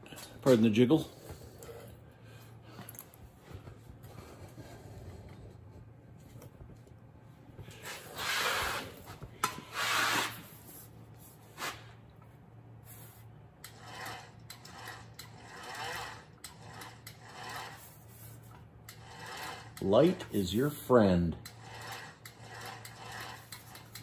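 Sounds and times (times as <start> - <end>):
sheet metal scraping through rollers: 13.7 - 24.0.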